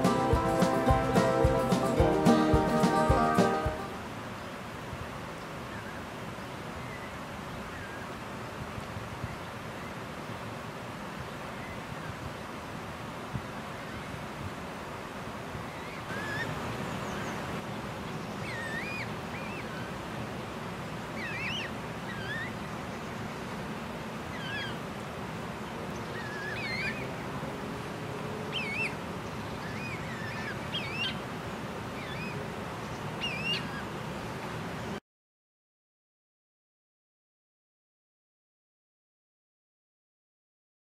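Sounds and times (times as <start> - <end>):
steady outdoor hiss: 0.0 - 35.0
bird chirping: 28.5 - 31.2, 32.0 - 33.8.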